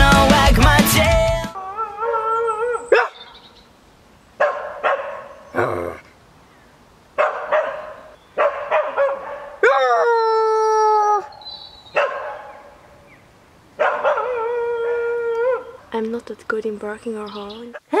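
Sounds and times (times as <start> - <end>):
person imitating dog howl: 1.5 - 2.9, 9.6 - 11.3, 14.2 - 15.8, 17.8 - 18.0
person imitating dog barks: 17.7 - 18.0.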